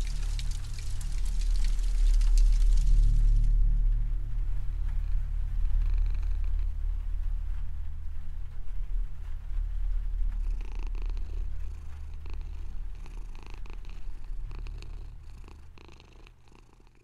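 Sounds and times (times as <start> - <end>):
fluttering electronic drone: 0.0 - 16.2
crackles: 0.0 - 16.8.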